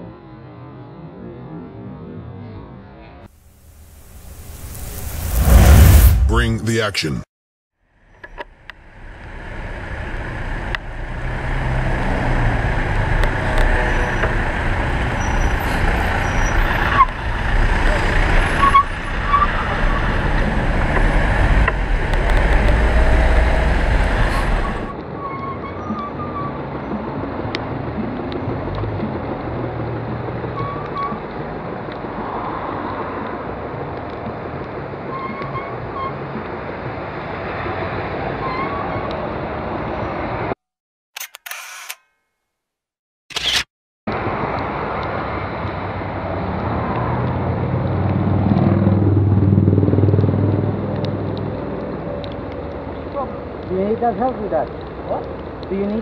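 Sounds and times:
traffic: 0:03.2 - 0:07.2, 0:07.9 - 0:40.6, 0:43.3 - 0:56.0
tyre noise on wet road: 0:03.4 - 0:06.3, 0:08.2 - 0:24.9
tyres on wet road: 0:03.4 - 0:06.4, 0:08.1 - 0:40.6, 0:44.1 - 0:56.0
low rumble: 0:03.5 - 0:06.8
vehicle engines: 0:07.9 - 0:40.6, 0:44.1 - 0:56.0.

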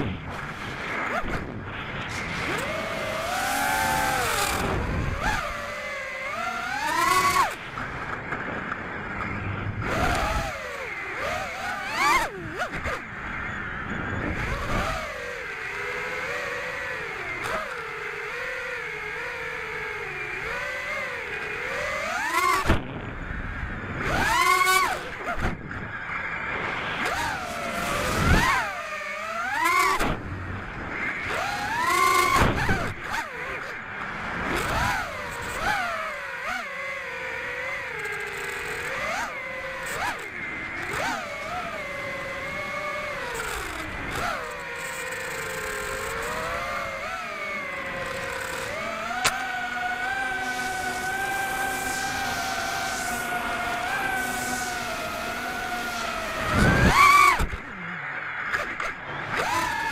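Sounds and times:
wind noise rushes: 0:00.0 - 0:05.5, 0:56.3 - 0:57.6
drone motors whining: 0:00.0 - 0:59.9.

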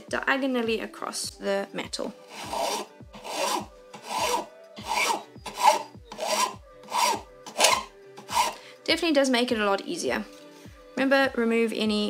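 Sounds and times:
file rasping on metal: 0:02.3 - 0:08.6.

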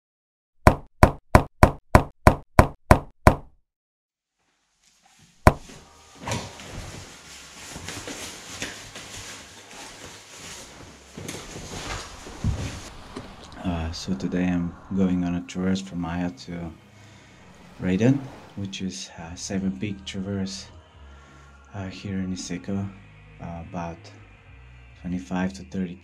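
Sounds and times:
sharp knocks: 0:00.7 - 0:03.5
gear and bags rustling: 0:05.6 - 0:13.5.

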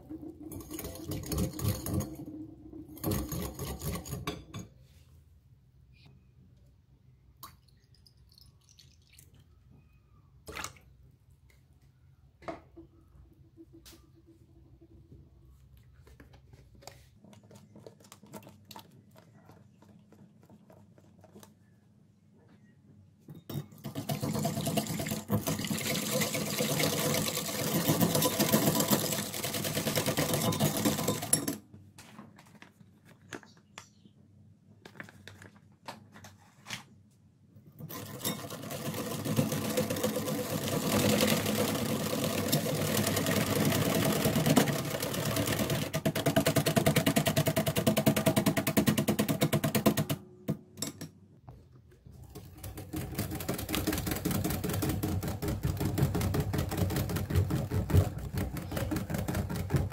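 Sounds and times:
whisk clattering against glass bowl: 0:00.2 - 0:04.7.

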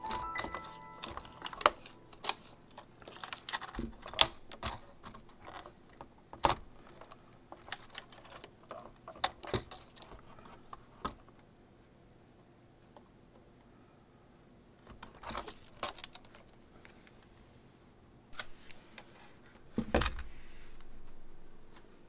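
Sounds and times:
clicks and knocks of small parts: 0:00.1 - 0:11.3, 0:14.8 - 0:17.0.

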